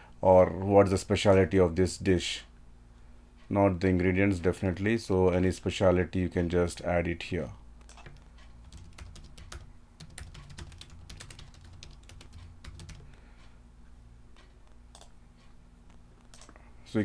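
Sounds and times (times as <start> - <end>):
faint low hum: 0.0 - 17.0
computer keyboard typing: 7.8 - 13.1, 14.9 - 15.2, 16.2 - 16.6.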